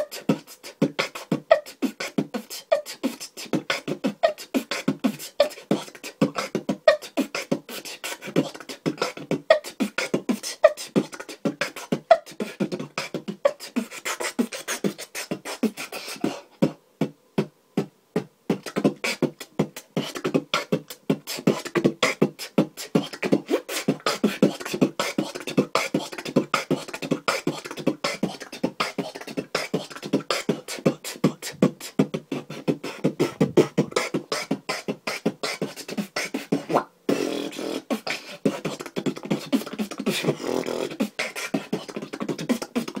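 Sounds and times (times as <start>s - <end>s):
fast beatboxing: 0.0s - 43.0s.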